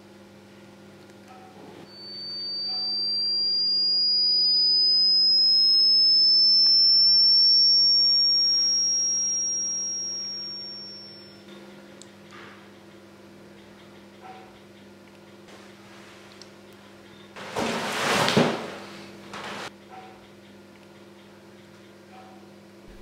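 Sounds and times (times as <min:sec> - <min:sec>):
steady low hum: 0:00.0 - 0:17.4
high-pitched electronic tone: 0:01.8 - 0:11.5.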